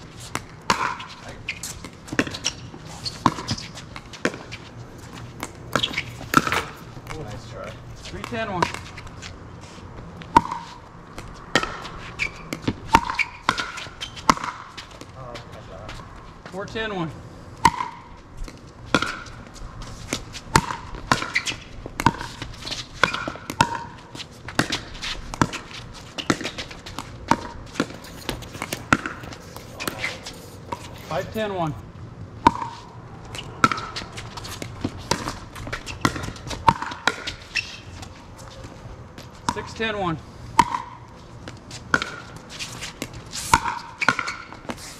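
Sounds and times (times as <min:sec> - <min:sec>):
ball bouncing on court: 0:00.3 - 0:04.5, 0:05.4 - 0:07.3, 0:08.1 - 0:09.0, 0:10.2 - 0:15.2, 0:17.6 - 0:18.1, 0:18.9 - 0:19.4, 0:20.5 - 0:31.5, 0:32.4 - 0:37.8, 0:39.2 - 0:39.9, 0:40.6 - 0:42.4, 0:43.0 - 0:44.8.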